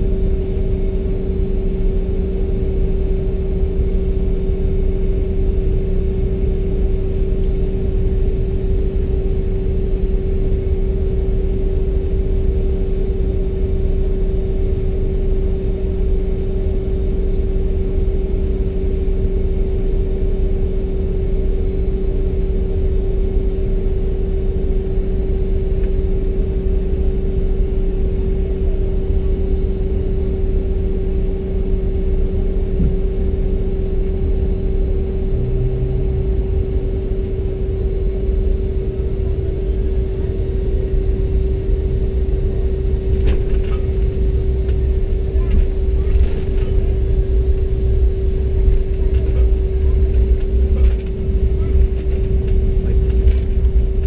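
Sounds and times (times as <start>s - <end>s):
constant hum tone: 0.0s - 54.0s
low rumble: 32.2s - 54.0s.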